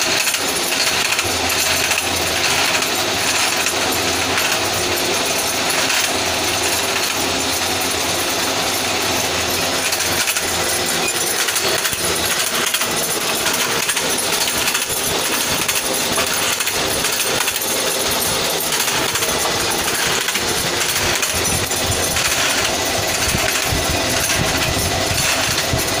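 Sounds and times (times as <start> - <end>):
bamboo slicer machine clattering: 0.0 - 26.0.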